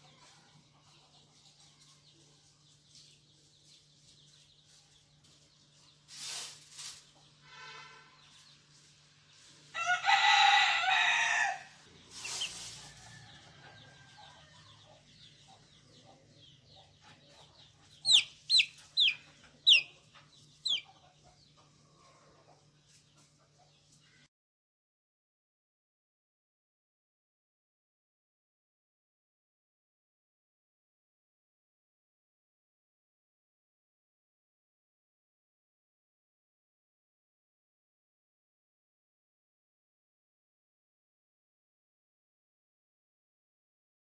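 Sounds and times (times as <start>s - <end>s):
chick peeping: 0.0s - 7.3s, 11.8s - 24.1s
rustling: 3.7s - 7.2s, 12.1s - 13.2s
rooster crowing: 9.7s - 11.8s.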